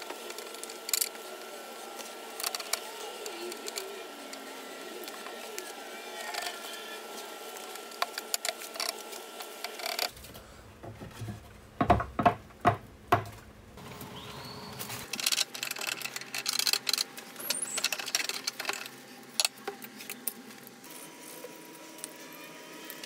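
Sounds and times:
pipe clamps clicking and rattling: 2.0 - 2.8, 15.0 - 20.4
hard wooden knocks: 10.8 - 13.4.

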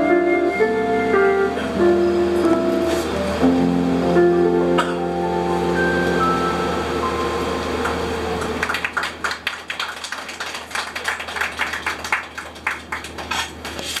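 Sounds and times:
band final chord: 0.0 - 8.6
audience clapping: 7.8 - 14.0.

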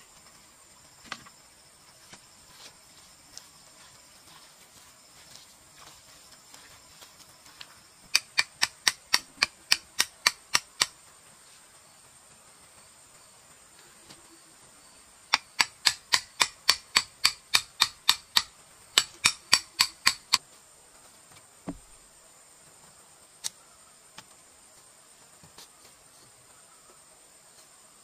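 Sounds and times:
insects humming: 0.0 - 28.0
machete striking bamboo: 8.1 - 11.0, 15.3 - 20.4
dull thud: 21.6 - 22.0.

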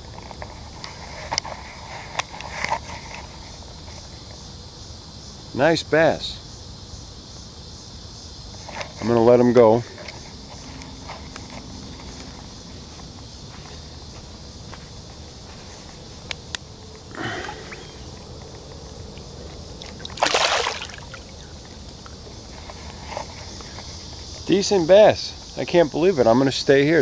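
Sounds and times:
steady high hiss: 0.0 - 27.0
water sloshing and splashing: 19.8 - 21.4.

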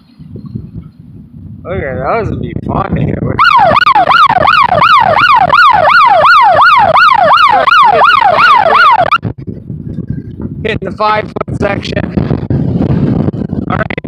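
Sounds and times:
wind rumble on microphone: 0.0 - 14.0
electronic siren wail: 3.4 - 9.2.

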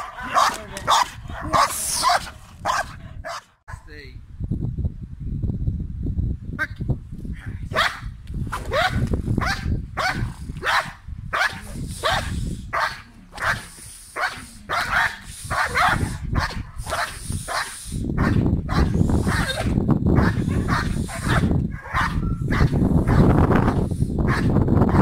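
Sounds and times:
dog barking sharply: 0.0 - 3.8, 7.8 - 8.0, 8.7 - 13.6, 14.2 - 19.6, 20.2 - 23.2.

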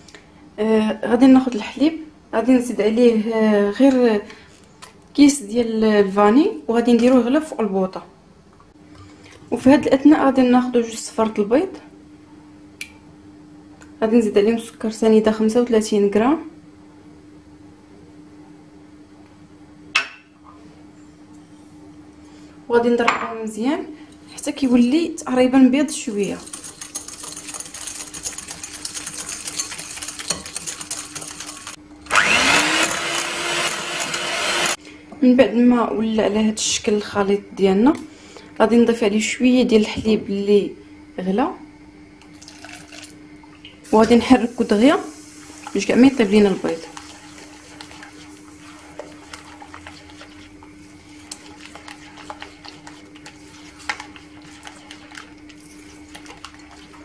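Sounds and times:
spatula stirring in glass bowl: 25.9 - 31.8, 45.5 - 57.0
whisk clicking against glass bowl: 26.1 - 31.8
electric hand mixer whine: 28.7 - 34.8
steady low hum: 34.7 - 57.0.

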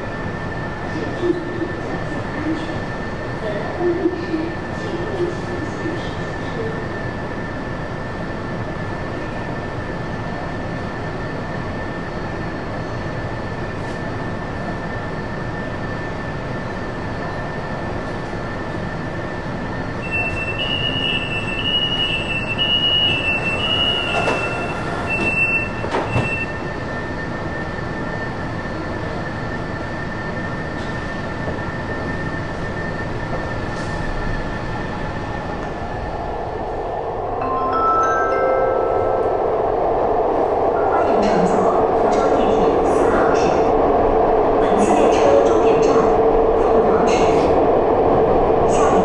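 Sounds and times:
train hum with high whine: 0.0 - 49.0
door-closing warning beeps: 20.0 - 26.6
train doors thumping shut: 23.9 - 26.5.

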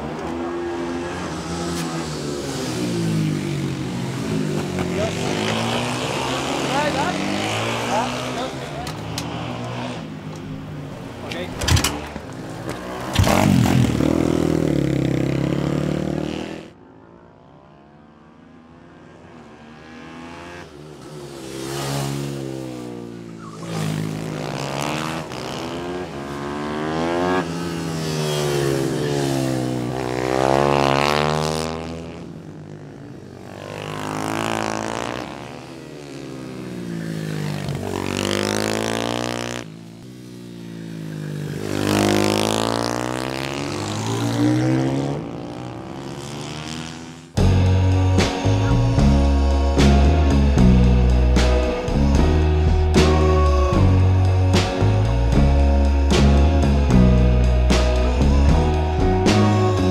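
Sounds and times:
kart engines revving past: 0.0 - 59.9
steady engine drone: 47.4 - 59.9.

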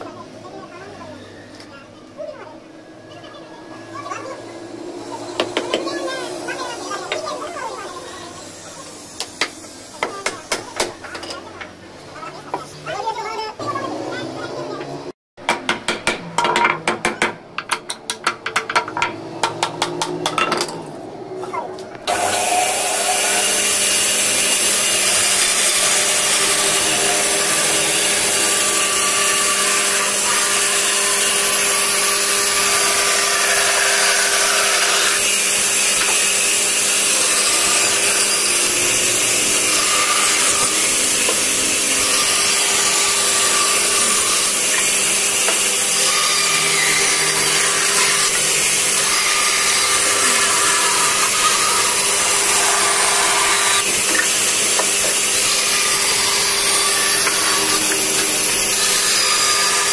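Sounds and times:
band saw cutting wood: 3.8 - 11.8, 21.5 - 59.9.

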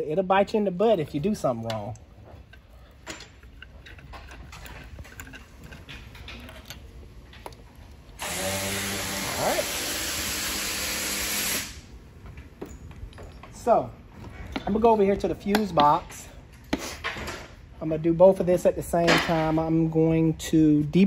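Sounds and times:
faint clicks of parts handled: 1.5 - 8.2
power tool whirring: 8.2 - 11.8.

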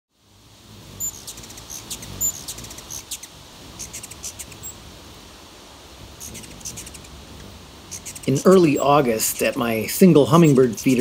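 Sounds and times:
hummingbirds chipping and twittering: 0.3 - 11.0.

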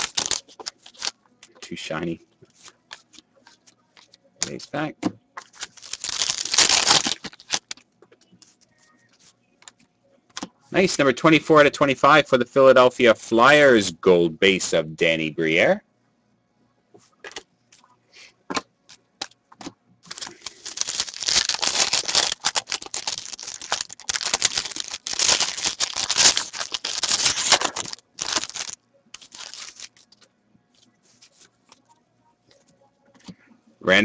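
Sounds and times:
foil wrapper tearing and crinkling: 0.0 - 1.1, 5.4 - 7.8, 20.0 - 30.2.

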